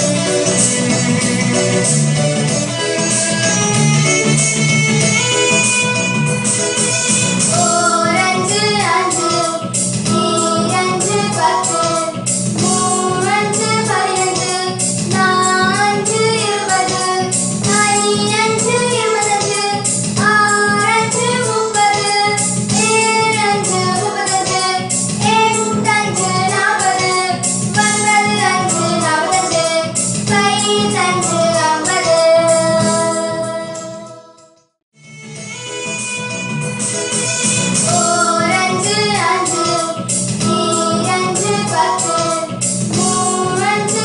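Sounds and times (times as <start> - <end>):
backing music with steady beat: 0.0 - 44.0
person singing: 5.6 - 19.6, 30.6 - 34.4, 35.7 - 44.0.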